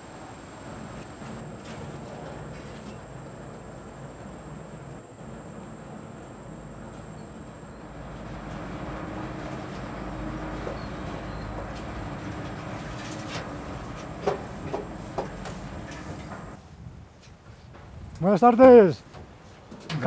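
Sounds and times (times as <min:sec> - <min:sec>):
pulley rolling rumble on cable: 0:01.1 - 0:16.6.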